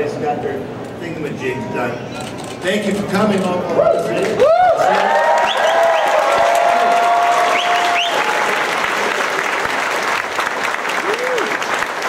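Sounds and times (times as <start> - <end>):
audience applauding: 4.2 - 12.0
long held shout: 11.0 - 11.6.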